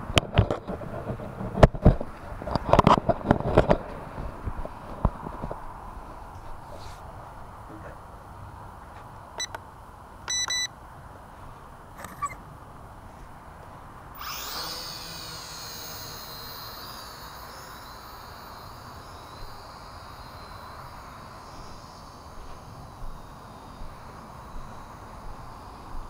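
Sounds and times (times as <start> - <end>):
short electronic beep: 10.3 - 10.7
quadcopter motors whining: 12.0 - 12.4, 14.2 - 26.0.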